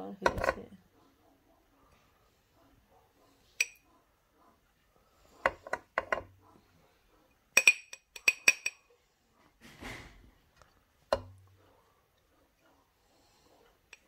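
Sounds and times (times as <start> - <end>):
spoon clinking on glass jar: 3.6 - 3.8, 7.6 - 8.8.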